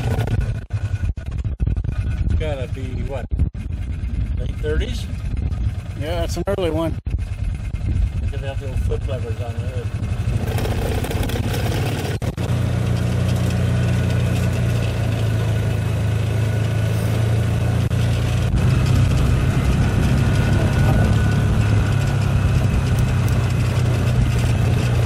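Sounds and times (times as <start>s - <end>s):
vehicle engine droning: 0.0s - 25.0s.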